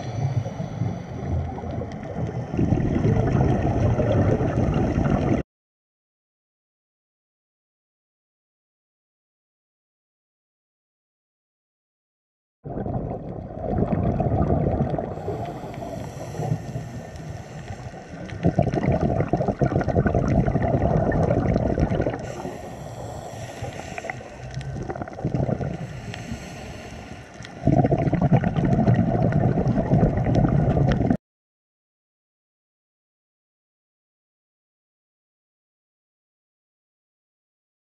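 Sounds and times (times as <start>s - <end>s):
muffled underwater rushing water: 0.0s - 5.4s, 12.6s - 31.2s
faint clicks: 23.6s - 25.1s, 27.2s - 27.6s.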